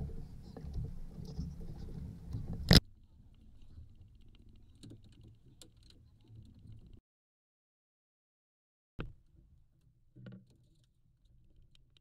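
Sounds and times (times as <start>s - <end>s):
wind rumbling on microphone: 0.0s - 5.5s
faint clicks and rattles: 0.0s - 7.0s.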